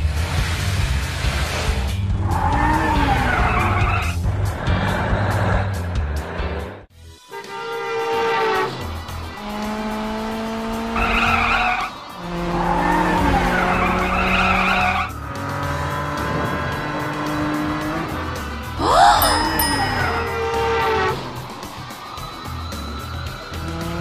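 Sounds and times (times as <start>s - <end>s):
tyre squeals: 12.8s - 15.1s
cartoon music: 18.8s - 21.7s.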